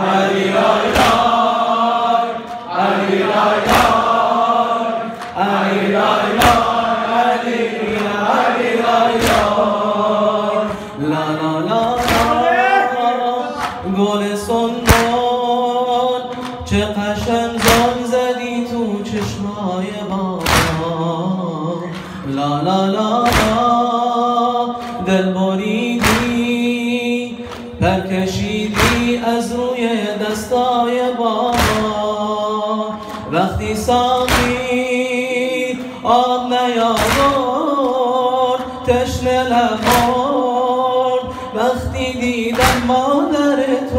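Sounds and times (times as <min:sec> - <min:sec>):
man chanting a lament: 0:09.4 - 0:43.9.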